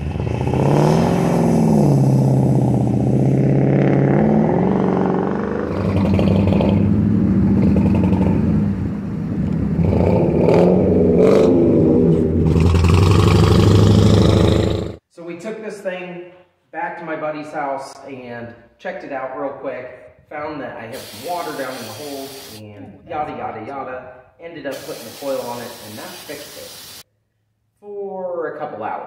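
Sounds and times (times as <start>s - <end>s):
car exhaust revving: 0.0s - 15.0s.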